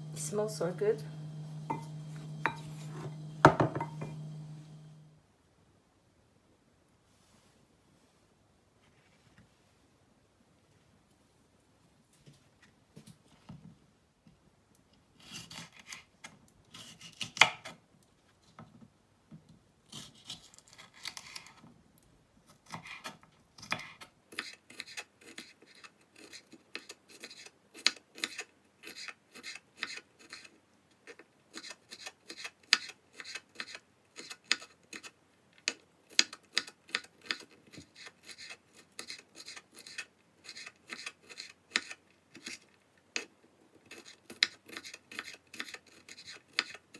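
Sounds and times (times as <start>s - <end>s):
knife chopping on cutting board: 1.6s - 4.4s
knife scraping on cutting board: 1.6s - 4.6s, 22.7s - 30.5s, 36.9s - 42.6s, 43.9s - 46.8s.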